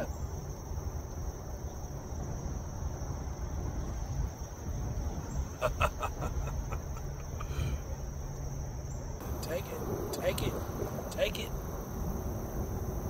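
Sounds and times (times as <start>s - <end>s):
high drone of insects: 0.0s - 13.0s
low rumble: 9.2s - 13.0s.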